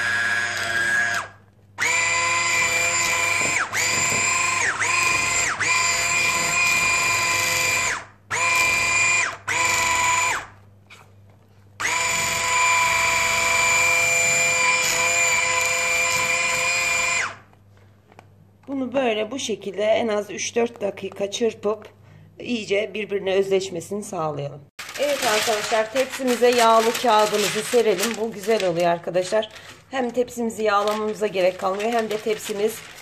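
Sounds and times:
electric hand mixer whining: 0.0s - 10.5s, 11.8s - 17.4s.

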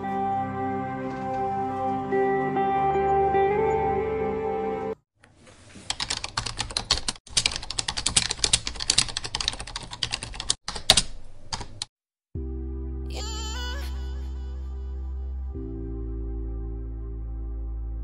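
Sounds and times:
soft background music: 0.0s - 5.0s.

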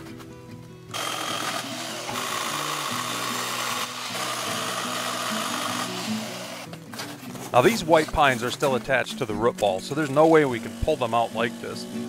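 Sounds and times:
background music: 0.0s - 12.0s
pole saw cutting wood: 0.9s - 6.7s, 10.0s - 12.0s.

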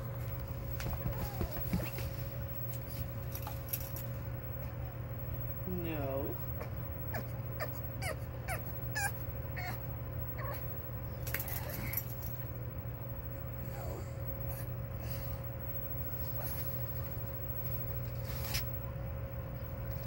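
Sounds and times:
dog whining: 0.8s - 2.1s, 6.5s - 10.8s.

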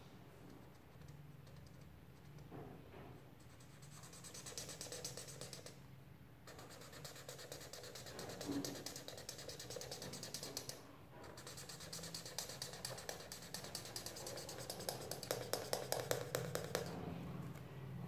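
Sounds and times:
marker pen scratching on paper: 3.4s - 5.8s, 6.5s - 17.0s.

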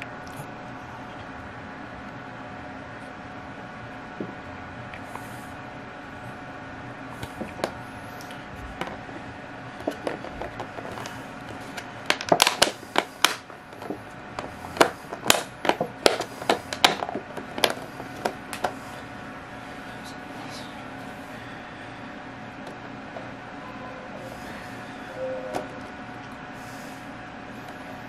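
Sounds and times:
steady low hum: 0.0s - 28.0s
plastic cup crinkling and clicking: 9.8s - 18.7s.

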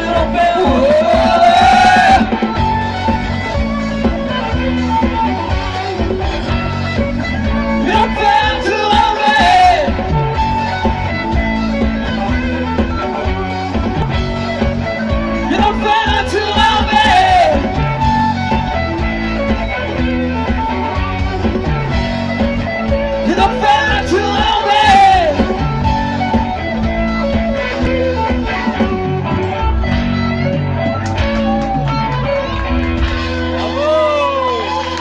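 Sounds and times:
man singing lead vocal: 0.0s - 2.5s, 7.6s - 10.2s, 15.4s - 17.8s, 23.1s - 25.6s
bass guitar: 0.0s - 35.0s
drum kit: 0.0s - 35.0s
electric guitars: 0.0s - 35.0s.

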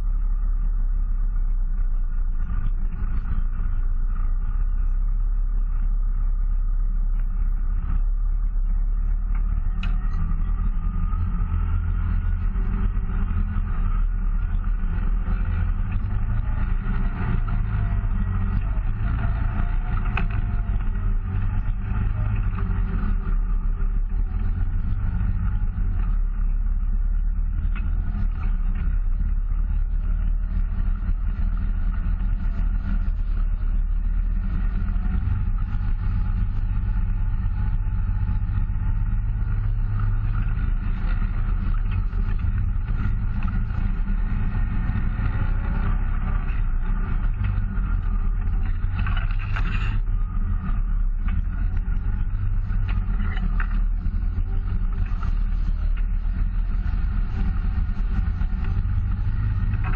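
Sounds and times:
vehicle engine running: 0.0s - 59.9s.

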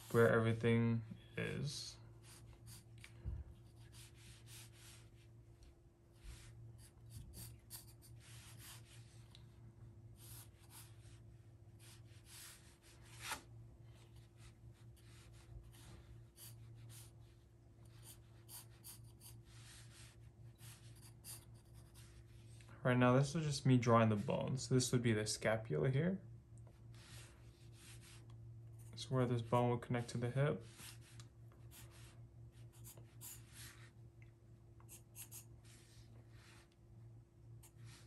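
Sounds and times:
pencil scratching on paper: 2.2s - 2.9s, 3.6s - 5.3s, 6.2s - 9.2s, 10.2s - 11.2s, 11.8s - 13.4s, 14.1s - 22.5s, 30.6s - 33.9s, 34.9s - 36.6s.

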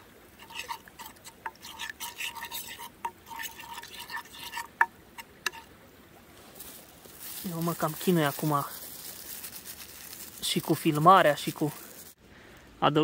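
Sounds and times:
fork scraping in a frying pan: 0.4s - 5.7s.

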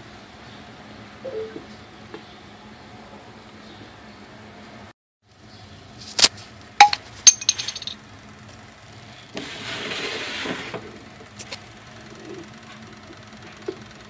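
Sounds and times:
metallic clinks: 6.8s - 8.0s.

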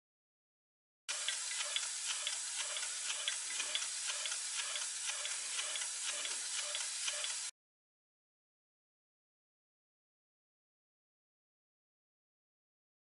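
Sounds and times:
model steam engine hissing and ticking: 1.1s - 7.5s.

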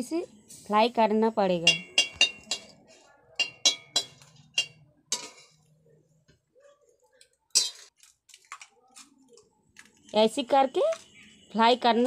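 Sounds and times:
chillies frying: 0.0s - 5.8s, 7.2s - 12.0s
metal spatula scraping a pan: 1.7s - 5.7s, 7.5s - 7.9s.

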